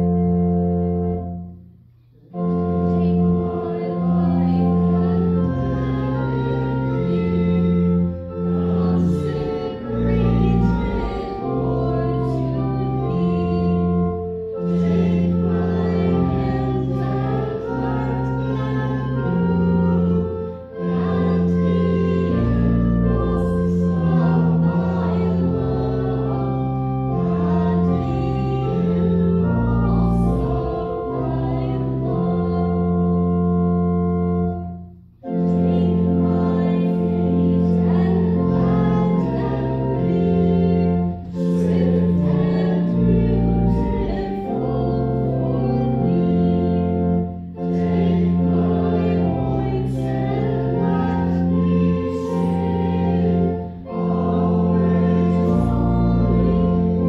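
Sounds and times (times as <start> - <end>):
church organ playing a hymn: 0.0 - 57.0
voices singing along: 2.3 - 33.2, 35.2 - 57.0.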